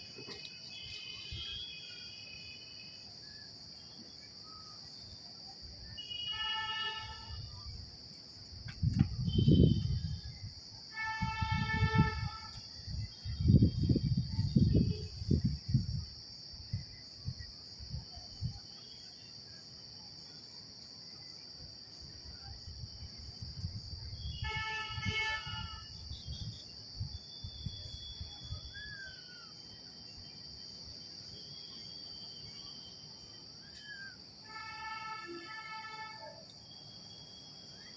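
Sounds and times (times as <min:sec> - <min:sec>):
insects droning: 0:00.0 - 0:37.9
horn-like tone: 0:06.0 - 0:07.6, 0:09.2 - 0:10.2, 0:10.9 - 0:12.6, 0:24.2 - 0:26.0, 0:34.4 - 0:36.4.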